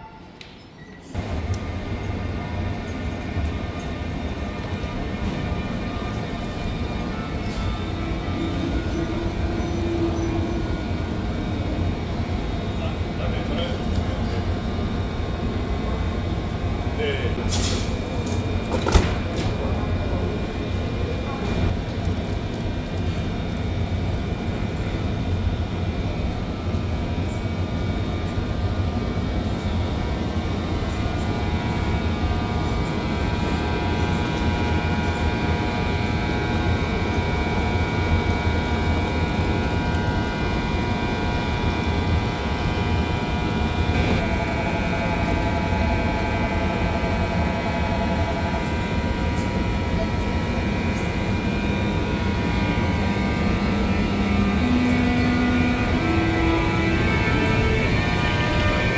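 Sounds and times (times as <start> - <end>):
locomotive equipment humming: 0.0 - 58.9
lower whining tone: 23.3 - 58.9.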